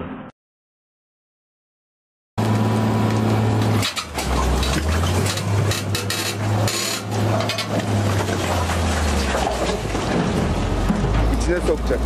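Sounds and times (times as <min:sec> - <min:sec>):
diesel engine droning under load: 0:02.4 - 0:12.0.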